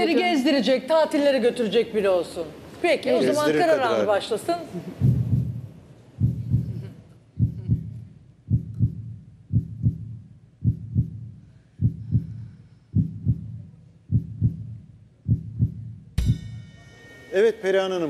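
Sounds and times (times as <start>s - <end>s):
heartbeat thumps: 5.0s - 16.5s.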